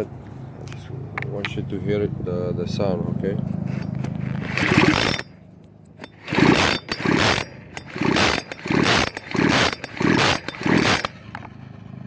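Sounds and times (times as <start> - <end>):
engine turning over: 3.7 - 12.0
chainsaw recoil starter pulls: 4.2 - 5.4, 6.0 - 11.5.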